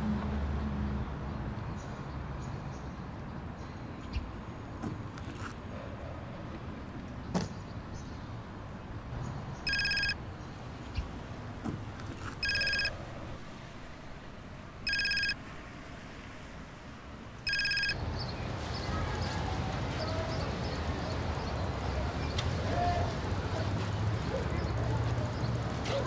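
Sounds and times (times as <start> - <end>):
telephone ringing: 9.7 - 10.2, 12.4 - 13.0, 14.8 - 15.4, 17.4 - 18.0.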